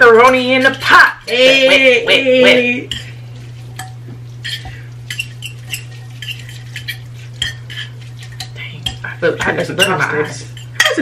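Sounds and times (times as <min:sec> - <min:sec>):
forks scraping ceramic bowls: 0:00.0 - 0:11.0
steady low hum: 0:00.0 - 0:11.0.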